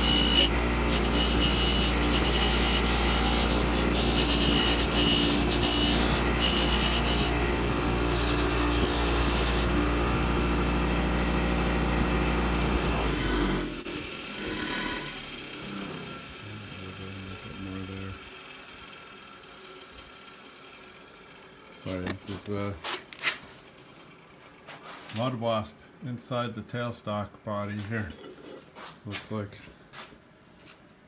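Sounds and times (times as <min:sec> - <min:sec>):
wire wheel scraping rusty rod: 0:00.0 - 0:09.7
bench grinder motor hum: 0:00.0 - 0:22.3.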